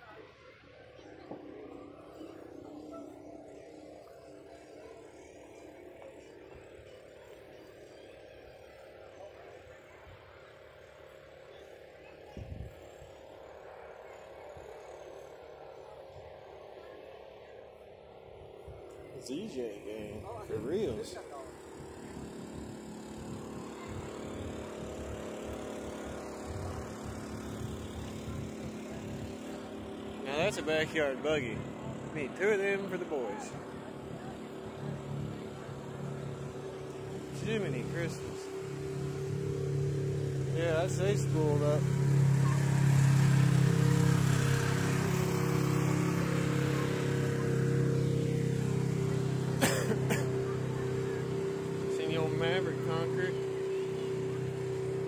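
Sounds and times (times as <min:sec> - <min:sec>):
engines idling: 0:00.0 - 0:55.0.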